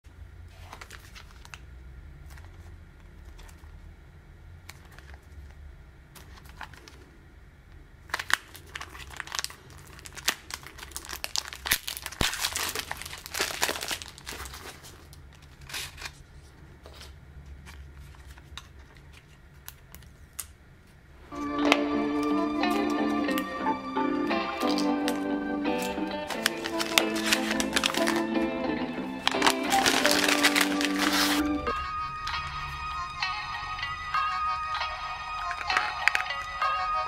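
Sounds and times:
plastic packaging crinkling: 0.5 - 1.6, 6.2 - 7.0, 8.0 - 20.5, 24.4 - 31.8, 35.4 - 36.6.

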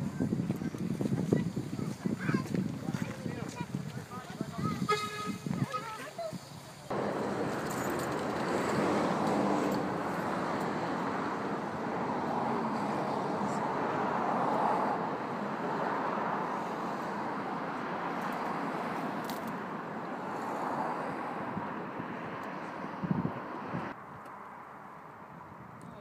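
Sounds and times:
vehicle interior running noise: 6.9 - 12.5.

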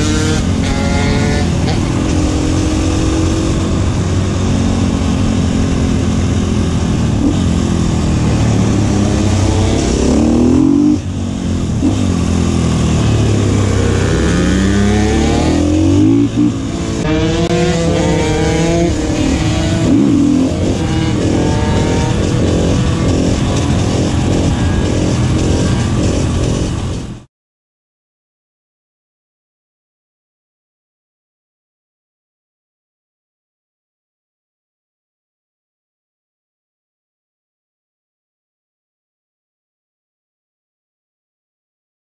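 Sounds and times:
motorcycle engine revving: 0.0 - 27.3.

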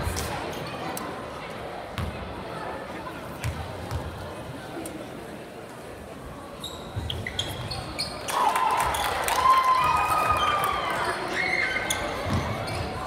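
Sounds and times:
voices in a hall: 0.0 - 13.0
basketball bouncing on gym floor: 2.0 - 2.2, 3.4 - 4.1, 12.2 - 12.9.

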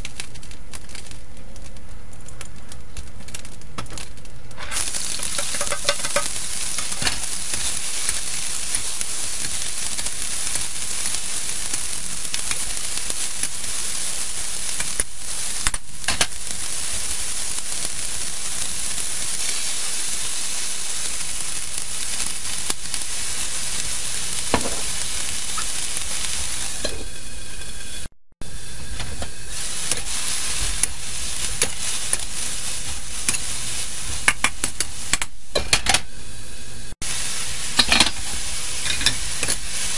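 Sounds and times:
bean sprouts sizzling in wok: 0.0 - 39.9
spatula scraping metal wok: 4.6 - 8.2, 37.7 - 39.8.

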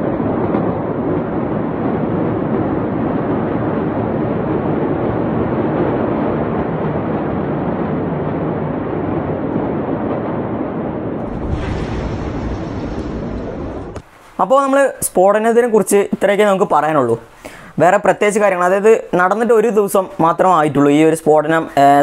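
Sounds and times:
wind on microphone: 0.0 - 14.2.

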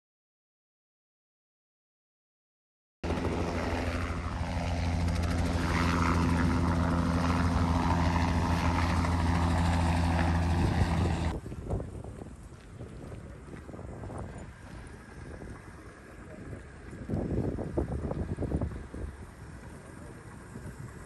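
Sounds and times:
helicopter rotor and turbine drone: 3.0 - 11.4, 13.9 - 21.0
outdoor noise: 3.0 - 21.0.

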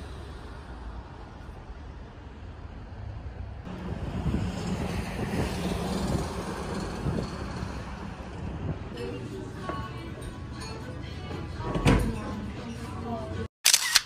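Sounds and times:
low engine hum: 0.0 - 12.2
road traffic passing: 0.0 - 13.5
wind on microphone: 3.7 - 9.0.

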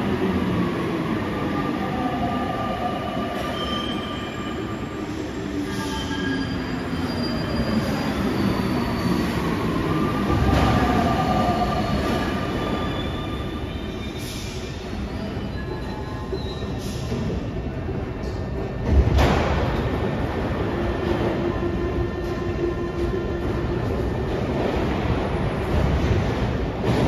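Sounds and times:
train running rumble: 9.6 - 27.0.

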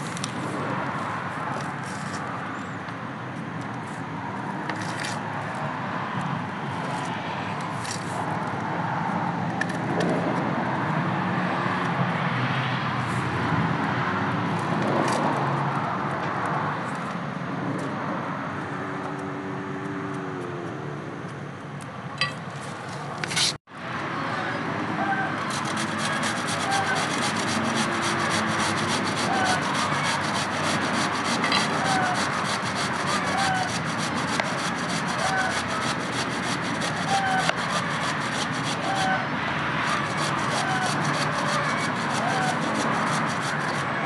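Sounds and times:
distant traffic hiss and rumble: 0.0 - 44.0
knives peeling vegetables: 25.4 - 44.0.

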